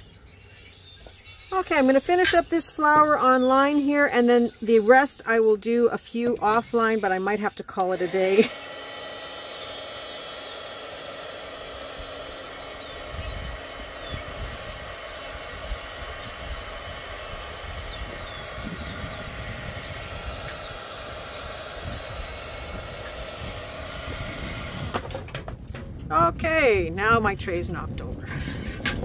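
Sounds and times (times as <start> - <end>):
heat gun blowing: 7.8 - 25.4
wind buffeting microphone: 11.9 - 29.0.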